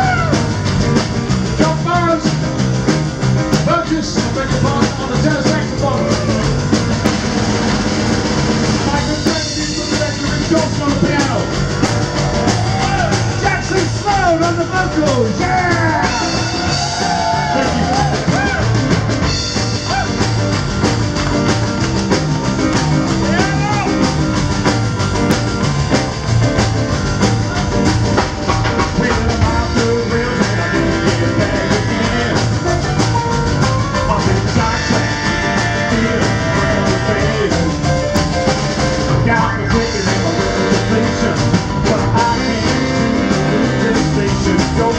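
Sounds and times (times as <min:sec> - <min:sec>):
man singing: 0:00.0 - 0:00.6, 0:01.5 - 0:02.6, 0:03.5 - 0:06.8, 0:08.8 - 0:11.6, 0:12.6 - 0:18.6, 0:28.8 - 0:44.9
rock and roll band playing: 0:00.0 - 0:44.9.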